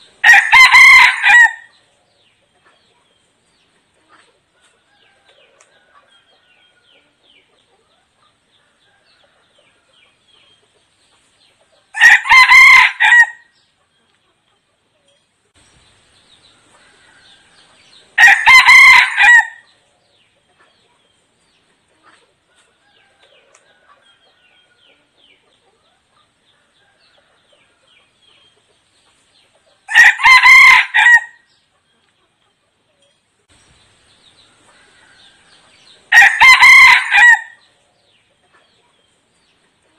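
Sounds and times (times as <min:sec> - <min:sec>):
rooster crowing: 0:00.2 - 0:01.7, 0:11.9 - 0:13.5, 0:16.8 - 0:19.6, 0:29.9 - 0:31.4, 0:34.7 - 0:37.6.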